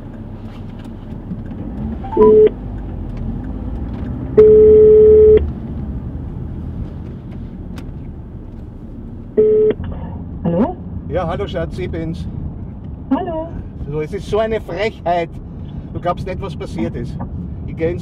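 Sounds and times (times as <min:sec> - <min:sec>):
car rumbling on road: 0:00.0 - 0:18.0
telephone ringback tone: 0:02.1 - 0:02.5, 0:04.4 - 0:05.4, 0:09.4 - 0:09.7.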